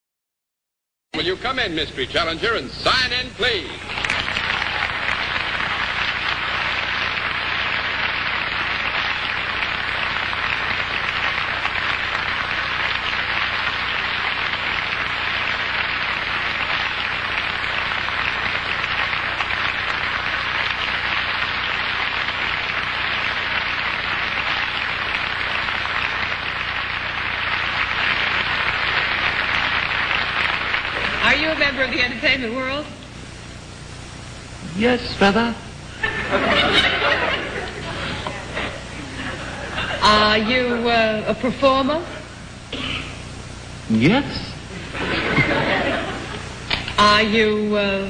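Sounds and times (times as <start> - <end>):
studio audience applauding: 2.9 - 31.8, 36.0 - 40.4, 43.9 - 47.0.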